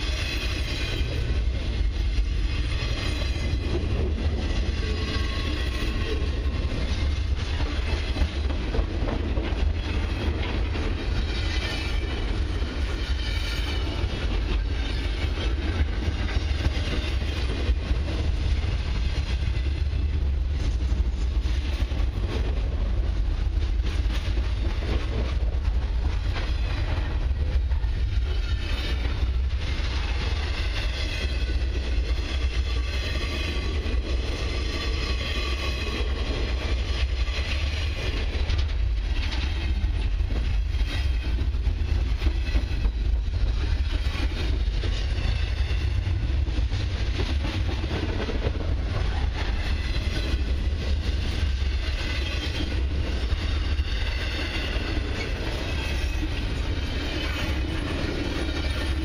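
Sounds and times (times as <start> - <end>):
freight train wheels rumbling: 0.0 - 59.0.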